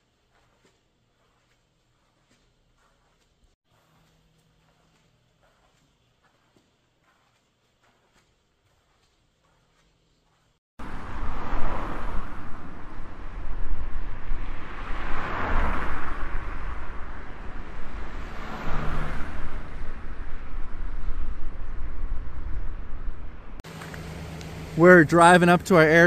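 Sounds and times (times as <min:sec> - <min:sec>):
car road noise rumble: 0:10.8 - 0:26.0.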